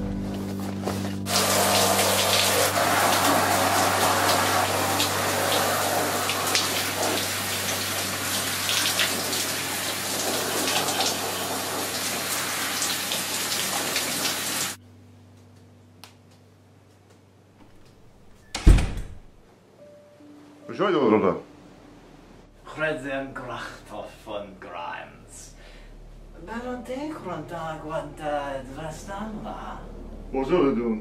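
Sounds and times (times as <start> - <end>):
shower spray running: 0.6 - 14.8
low steady hum: 14.8 - 19.2, 19.8 - 31.0.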